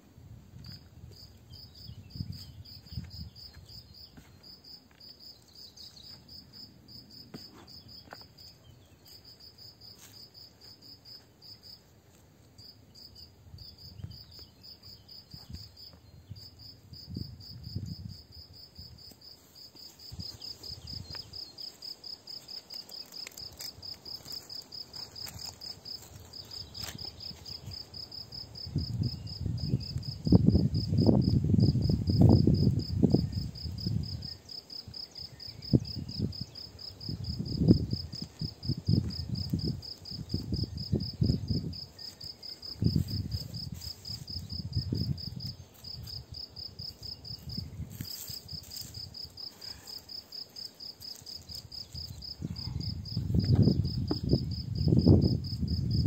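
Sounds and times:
crickets chirping: 0:00.0 - 0:56.0
hands working loose soil: 0:19.1 - 0:27.8.

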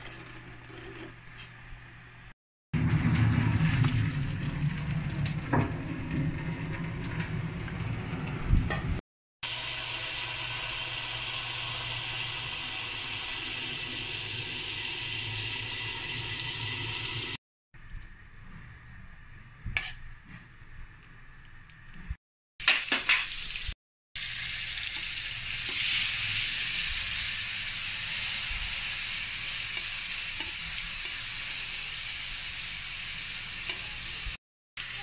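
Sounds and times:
water poured into metal strainer: 0:02.8 - 0:08.6
tap water running: 0:02.8 - 0:17.4.

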